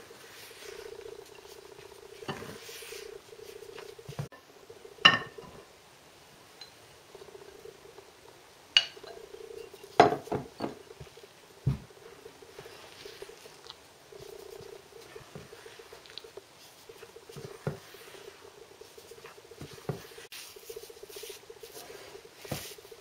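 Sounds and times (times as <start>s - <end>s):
spatula stirring batter: 0.0s - 4.4s, 12.1s - 23.0s
glass bowl clinking: 5.0s - 5.6s, 8.8s - 10.8s.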